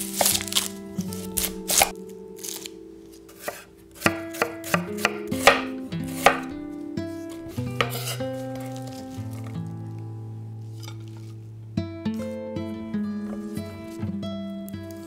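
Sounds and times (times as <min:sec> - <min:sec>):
knife striking cutting board: 0:00.1 - 0:00.7, 0:03.3 - 0:06.5, 0:07.2 - 0:09.0.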